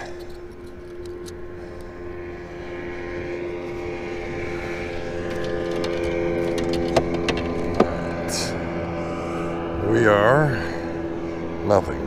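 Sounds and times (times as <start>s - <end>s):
motorboat engine droning: 0.0s - 12.0s.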